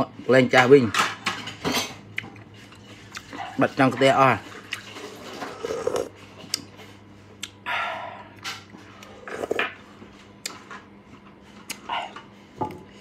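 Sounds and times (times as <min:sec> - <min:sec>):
mouth and chewing sounds: 0:02.1 - 0:03.7, 0:04.6 - 0:06.8
slurp: 0:04.7 - 0:06.1, 0:09.0 - 0:09.8.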